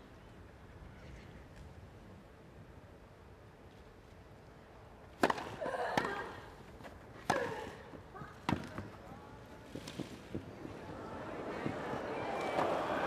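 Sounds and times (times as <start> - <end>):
racket hitting tennis ball: 5.2 - 6.3, 7.2 - 7.8.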